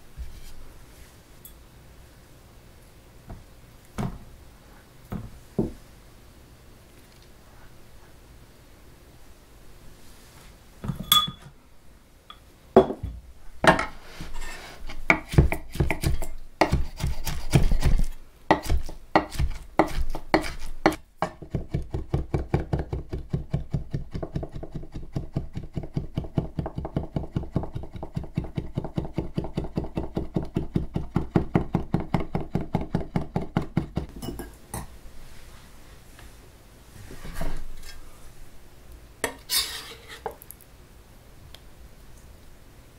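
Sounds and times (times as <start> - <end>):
knife chopping on wooden board: 15.0 - 34.1.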